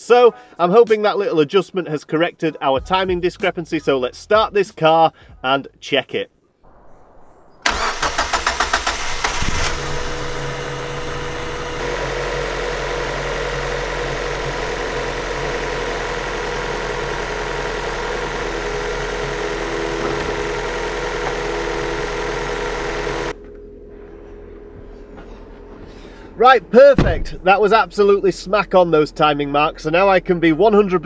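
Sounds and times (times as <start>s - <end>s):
engine starter cranking: 7.6s - 23.3s
car engine idling: 7.6s - 30.9s.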